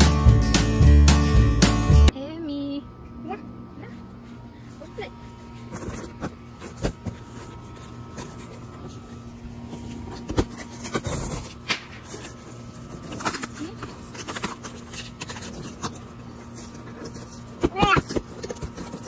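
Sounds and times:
steady low hum: 0:00.2 - 0:19.0
scraping rub on cardboard: 0:05.5 - 0:19.0.

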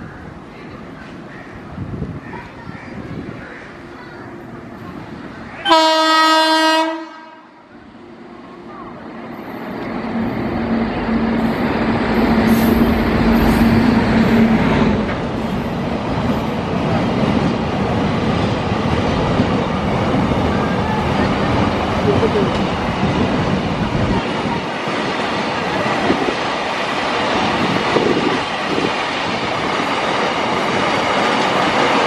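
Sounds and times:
locomotive horn blast: 0:05.6 - 0:07.6
locomotive passing at speed: 0:07.8 - 0:32.0.

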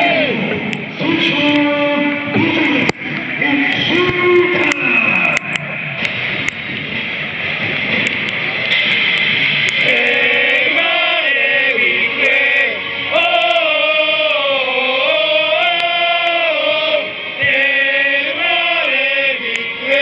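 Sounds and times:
crowd noise: 0:00.0 - 0:20.0
music: 0:00.0 - 0:20.0
crowd chanting in unison: 0:09.8 - 0:20.0.

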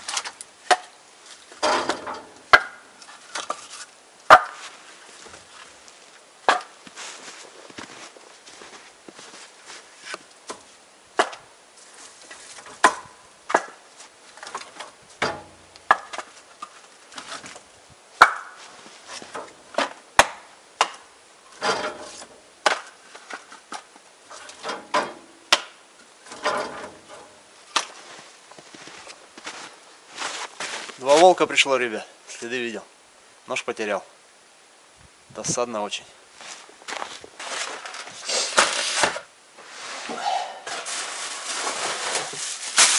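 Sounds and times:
firewood logs knocking together: 0:00.0 - 0:05.5, 0:06.4 - 0:07.0, 0:10.1 - 0:11.5, 0:12.3 - 0:28.0.

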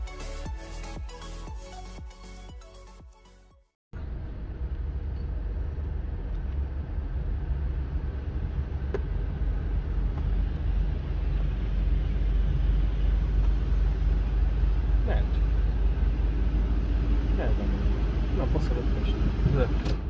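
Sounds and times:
car engine running: 0:04.0 - 0:20.0.

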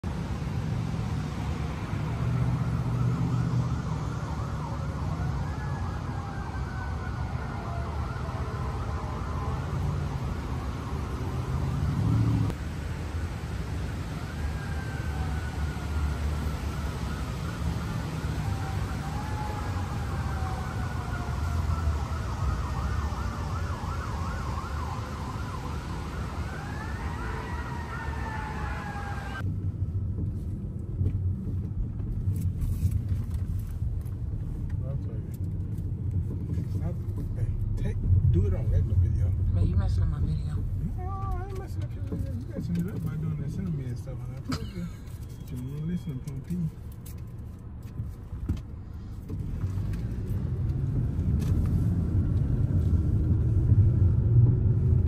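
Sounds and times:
sirens wailing and yelping: 0:01.7 - 0:12.6, 0:13.4 - 0:29.4
steady low rumble: 0:29.4 - 0:43.2.

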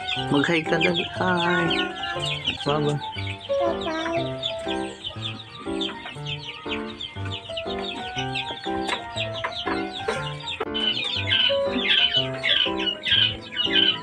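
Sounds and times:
background music with beat: 0:00.0 - 0:14.0
quails chirping: 0:00.0 - 0:14.0.

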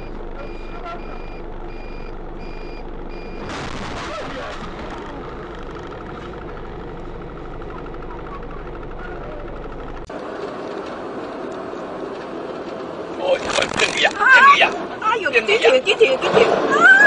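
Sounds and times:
pulsing warning beeps: 0:00.0 - 0:03.5
steady rattling noise: 0:01.4 - 0:10.1, 0:13.2 - 0:14.6
loud crash of bus and car: 0:03.3 - 0:06.5.

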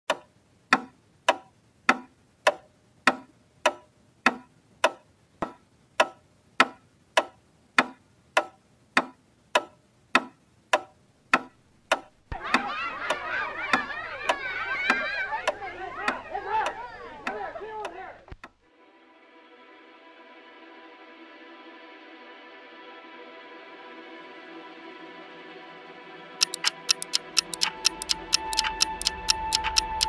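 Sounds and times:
clock ticking: 0:26.4 - 0:30.0.

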